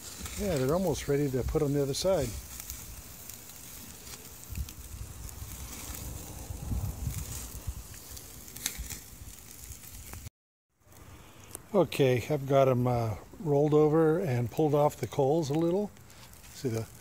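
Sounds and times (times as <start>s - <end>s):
chicken sizzling on grill: 0.0s - 17.0s
low rumble: 4.6s - 8.5s.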